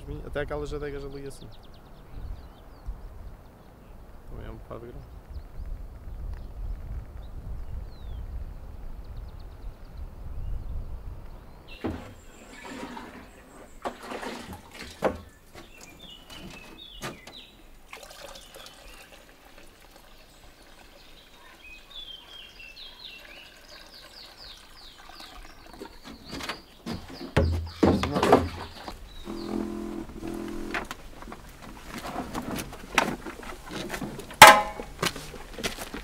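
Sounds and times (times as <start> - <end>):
birds chirping: 0.0 - 36.0
liquid pouring and gurgling: 12.0 - 15.0, 17.9 - 21.4, 23.0 - 26.0
plastic jug knocks: 26.9 - 28.7, 34.4 - 35.0.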